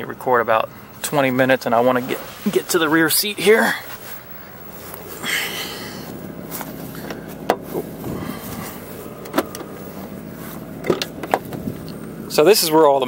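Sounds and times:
footsteps: 0:06.0 - 0:11.9
handling noise: 0:06.1 - 0:12.3.

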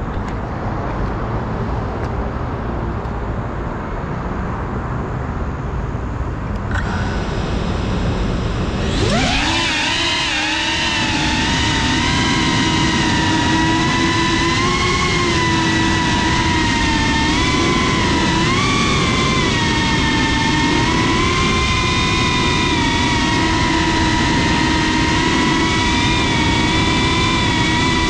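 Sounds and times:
rush of noise: 0:00.0 - 0:28.0
drone motors whining: 0:06.6 - 0:28.0.

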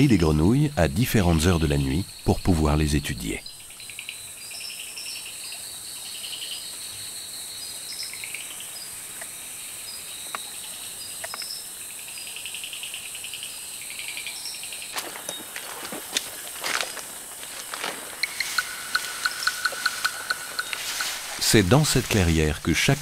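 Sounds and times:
pulsed insect trills: 0:00.0 - 0:23.0
rustling: 0:15.0 - 0:22.8
high-pitched insect drone: 0:16.7 - 0:23.0.

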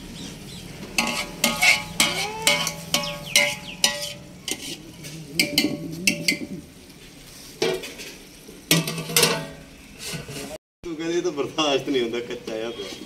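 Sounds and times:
metal dishes clinking: 0:01.0 - 0:06.5, 0:07.6 - 0:10.5.

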